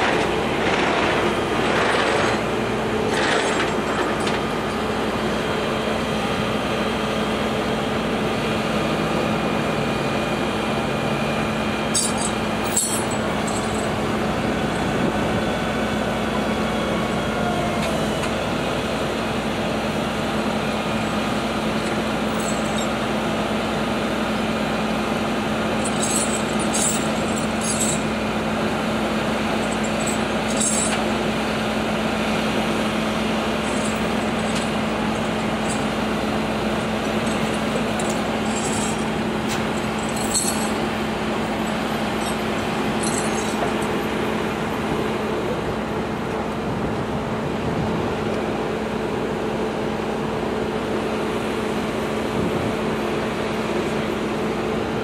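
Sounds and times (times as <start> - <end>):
engines idling drone: 0.0 - 55.0.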